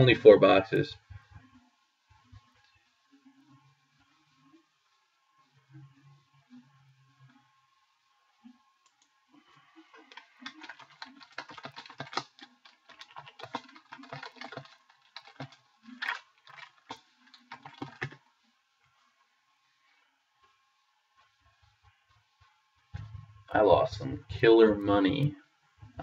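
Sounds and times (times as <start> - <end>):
typing on computer keyboard: 9.9 - 18.2.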